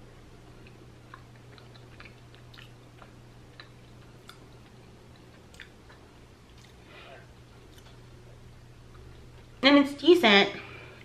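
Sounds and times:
low steady hum: 0.0s - 11.0s
person chewing: 0.4s - 8.1s.

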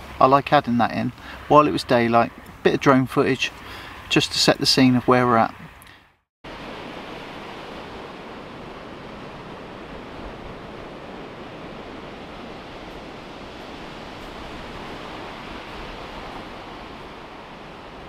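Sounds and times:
steady rushing outdoor noise: 0.0s - 5.9s, 6.5s - 18.0s.

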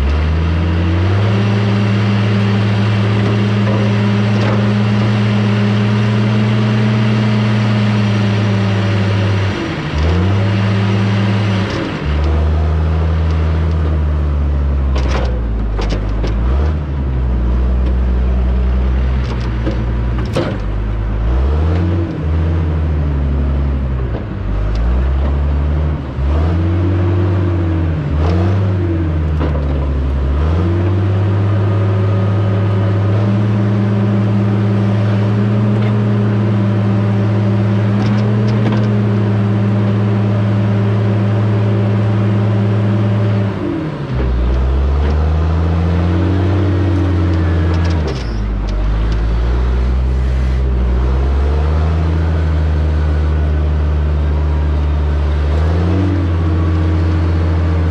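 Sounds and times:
heavy diesel engine working: 0.0s - 57.9s
metal knocks and clanks: 19.1s - 21.0s.

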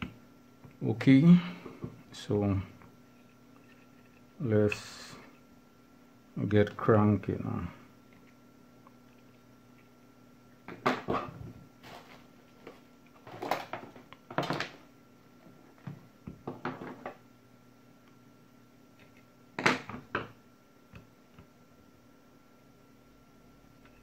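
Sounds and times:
board knocking and rattling: 16.3s - 17.2s.

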